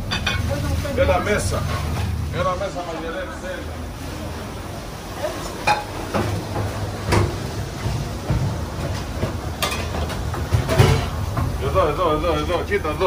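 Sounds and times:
dishes and pans clinking: 0.0s - 0.6s, 5.5s - 11.6s
kitchen equipment hum: 0.0s - 13.0s.

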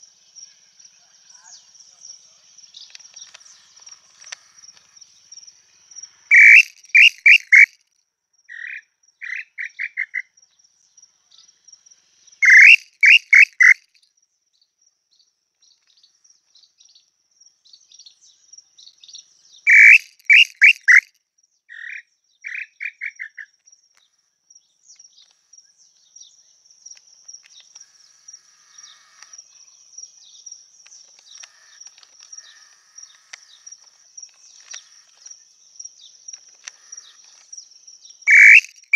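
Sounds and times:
high insect whine: 2.5s - 7.7s, 25.4s - 38.9s
bird whistling song: 6.3s - 7.8s, 12.4s - 13.8s, 19.6s - 21.1s, 38.2s - 38.9s.

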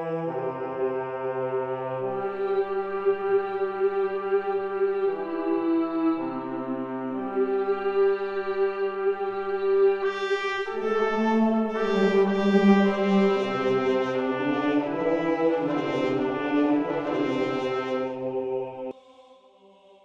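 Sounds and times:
slow held brass chords: 10.0s - 18.4s.

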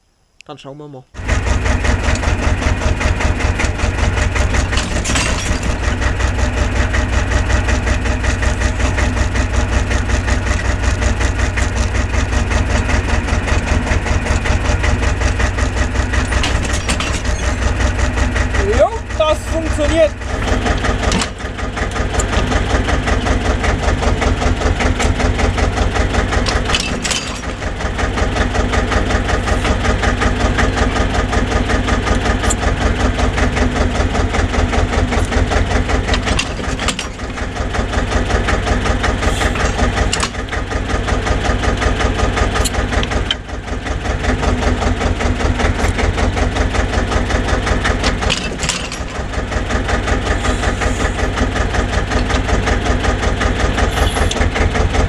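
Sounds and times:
diesel tractor engine idling: 1.2s - 55.0s
sharp metal clanks: 4.6s - 6.0s, 16.2s - 17.7s, 26.5s - 27.7s, 48.0s - 49.3s.

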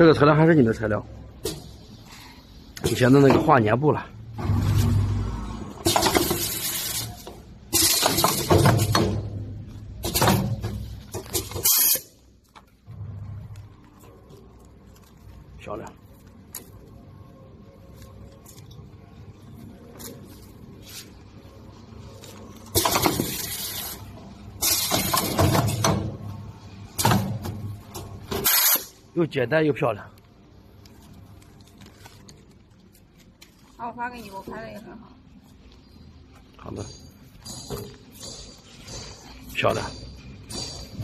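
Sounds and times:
machine hissing bursts: 11.3s - 12.2s, 24.6s - 25.8s, 28.3s - 29.0s.

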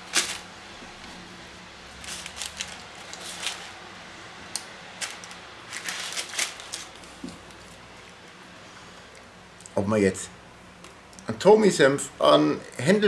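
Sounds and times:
paper napkin crinkling: 0.0s - 1.2s, 1.9s - 3.8s, 5.0s - 8.2s
bread crust crackling: 0.0s - 3.9s, 4.5s - 8.4s.

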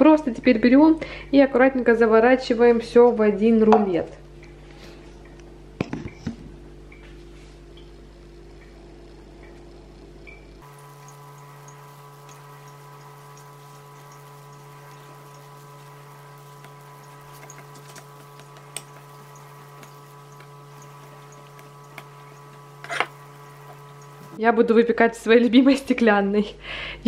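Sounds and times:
steady low hum: 0.0s - 27.0s
faint regular ticks: 8.6s - 24.2s.

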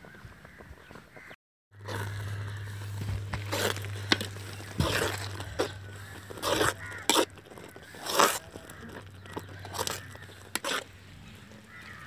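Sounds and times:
metal spatula scraping pot: 1.8s - 11.0s.

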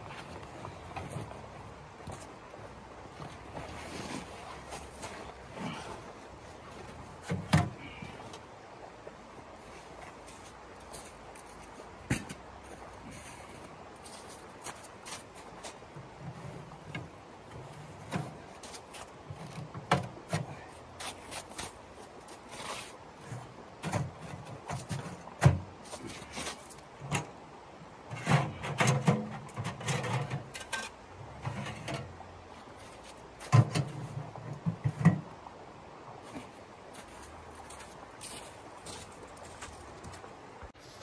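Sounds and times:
boots shifting on snow: 9.6s - 15.9s, 36.2s - 41.0s
metal stove parts clanking: 28.1s - 32.1s.

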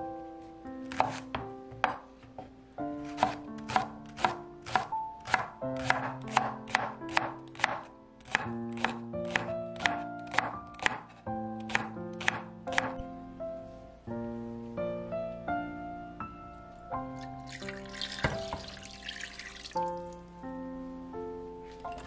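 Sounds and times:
background music with held notes: 0.0s - 22.0s
knife chopping on wooden board: 0.9s - 13.0s.

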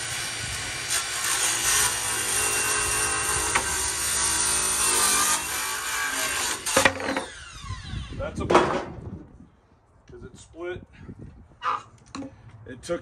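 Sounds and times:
power saw cutting wood: 0.0s - 8.2s
wood piece clattering on concrete: 6.6s - 7.4s, 8.4s - 9.1s.

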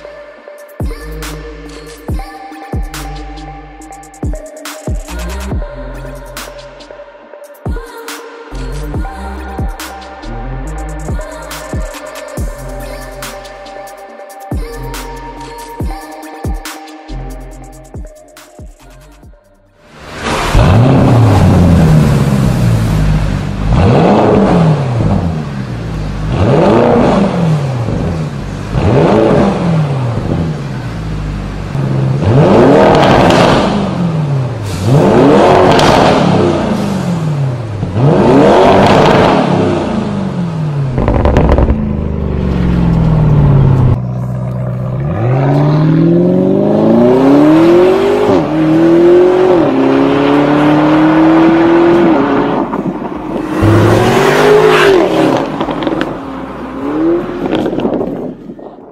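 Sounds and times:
car accelerating at full throttle: 19.9s - 58.5s
car engine revving: 19.9s - 58.5s.

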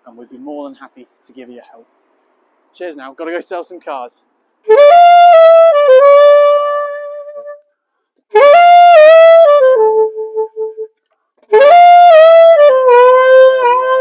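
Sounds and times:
solo saxophone phrases: 4.7s - 7.6s, 8.4s - 10.8s, 11.5s - 14.0s.

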